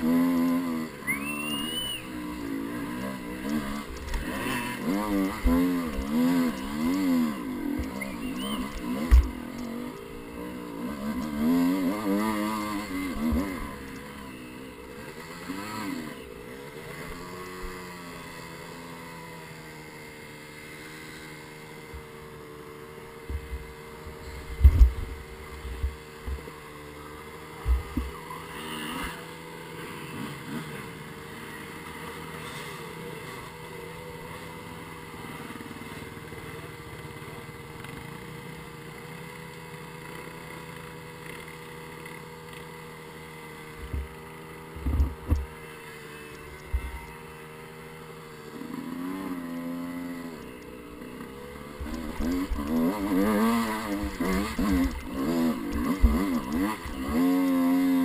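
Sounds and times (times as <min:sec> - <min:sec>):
dirt bike engine revving: 0:00.0 - 0:58.0.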